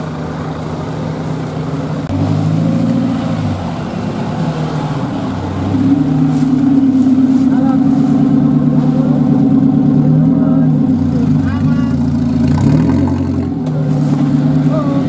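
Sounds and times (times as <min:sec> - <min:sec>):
engine revving: 0:02.0 - 0:15.0.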